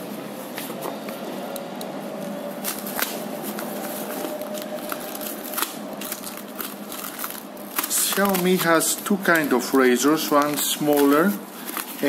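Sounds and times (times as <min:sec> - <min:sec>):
knife cutting paper mailer: 0:02.6 - 0:12.0
sharp clicks and crackles: 0:04.3 - 0:12.0.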